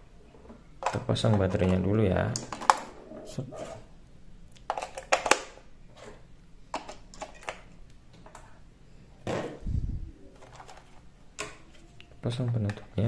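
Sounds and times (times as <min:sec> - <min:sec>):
plastic and metal clicks and rattles: 0:04.7 - 0:05.6.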